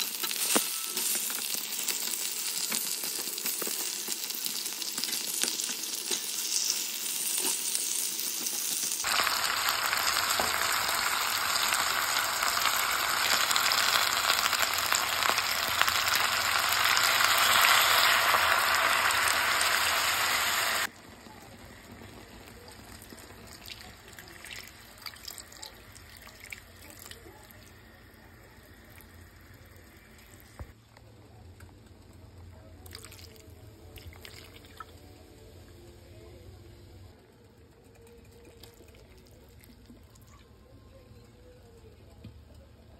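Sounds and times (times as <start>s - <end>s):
meat sizzling in a pan: 0.0s - 30.6s
rush of sizzling from poured liquid: 6.3s - 27.8s.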